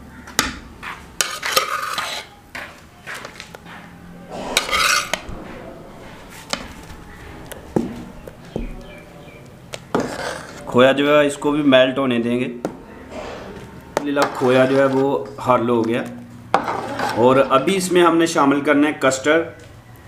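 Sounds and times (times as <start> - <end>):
ladle stirring in pot: 1.2 - 2.3, 4.3 - 6.9.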